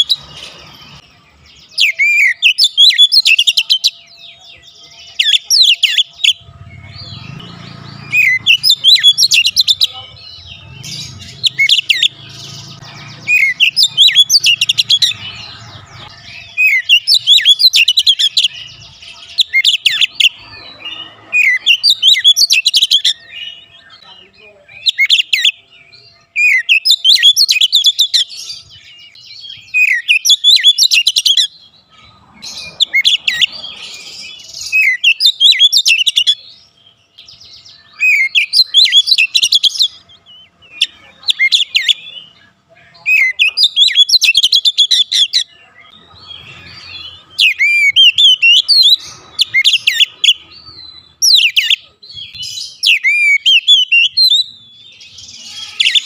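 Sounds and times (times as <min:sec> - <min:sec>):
bird whistles and trills: 0:26.4 - 0:36.4, 0:37.2 - 0:42.4, 0:43.0 - 0:45.5, 0:46.2 - 0:56.0.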